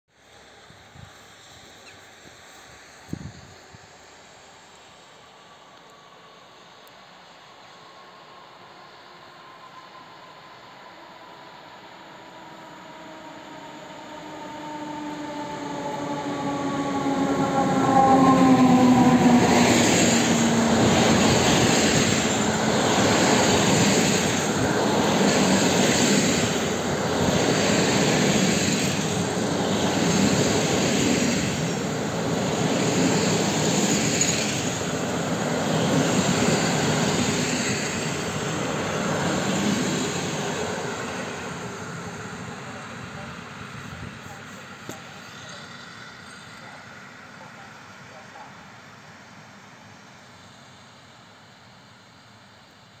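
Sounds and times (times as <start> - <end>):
electric locomotive whine: 0.1 - 53.0
train coaches rumbling and clattering: 12.0 - 48.4.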